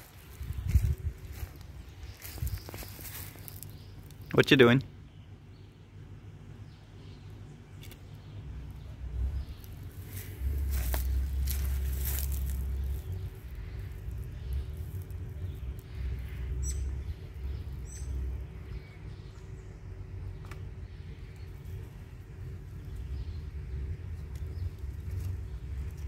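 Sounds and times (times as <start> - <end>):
wind buffeting microphone: 0.0 - 3.4
small bird chirping: 0.0 - 5.8, 6.6 - 26.0.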